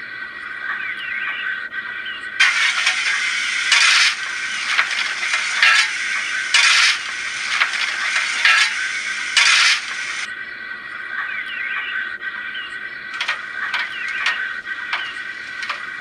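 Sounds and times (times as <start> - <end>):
scraping rattling shovel strokes: 2.4 - 10.3, 13.2 - 16.0.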